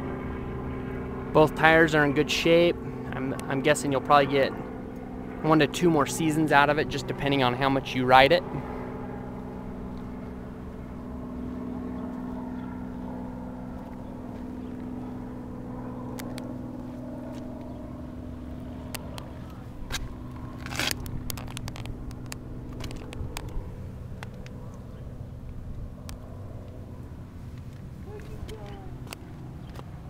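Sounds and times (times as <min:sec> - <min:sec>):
low mechanical hum: 0:00.0 - 0:30.0
sharp clicks: 0:16.1 - 0:16.5, 0:19.9 - 0:24.8.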